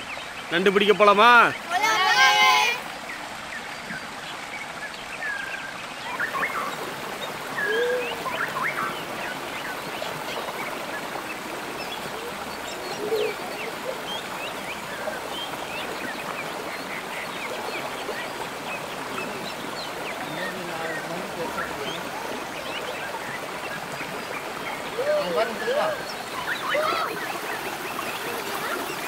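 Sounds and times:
stream running over rocks: 0.0 - 29.0
small birds chirping: 2.8 - 29.0.

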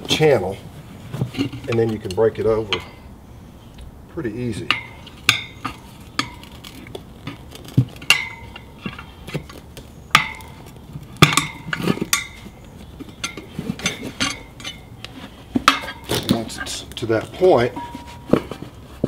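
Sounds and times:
metal tire levers clinking on rim: 1.2 - 3.1, 4.4 - 18.6.

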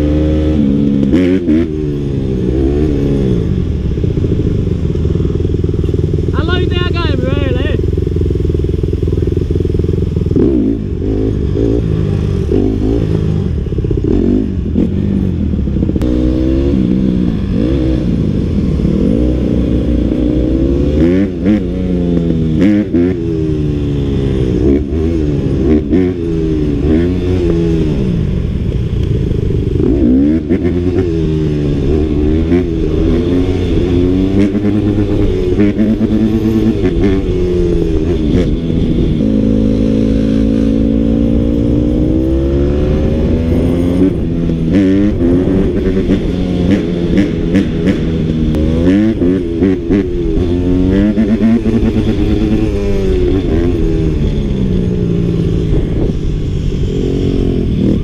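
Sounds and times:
dirt bike engine revving: 29.7 - 58.0.

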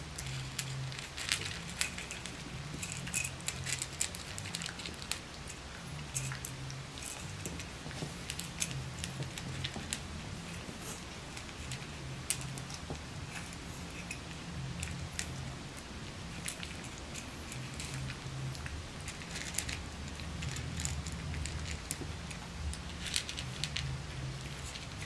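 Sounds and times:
puppies crunching dry kibble: 0.0 - 25.0.

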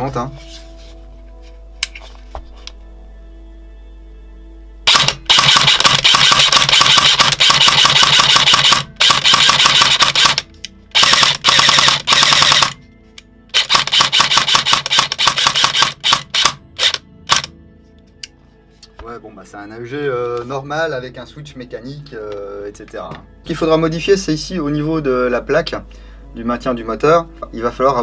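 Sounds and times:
airsoft gun gearbox bursts: 4.9 - 10.4, 11.0 - 12.8, 13.5 - 17.5.

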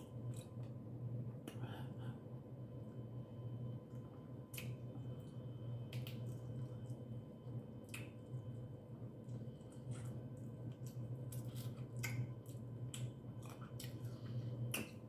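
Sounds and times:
steady low hum: 0.0 - 15.0
eating seafood clicks and smacks: 0.1 - 0.8, 3.9 - 7.1, 7.8 - 8.5, 9.2 - 15.0.

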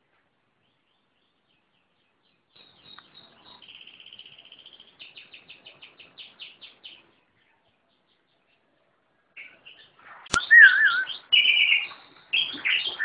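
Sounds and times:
songbird singing: 0.0 - 13.0.

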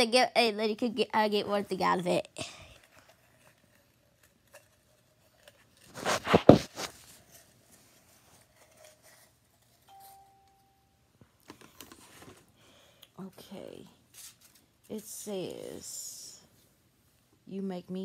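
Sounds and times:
paper crinkling and rustling: 2.8 - 9.9, 14.1 - 15.1.

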